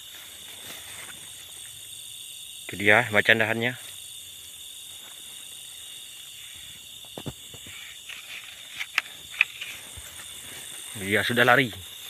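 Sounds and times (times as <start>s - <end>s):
crickets and insects trilling: 0.0s - 12.0s
knocks and rustles: 7.0s - 10.4s.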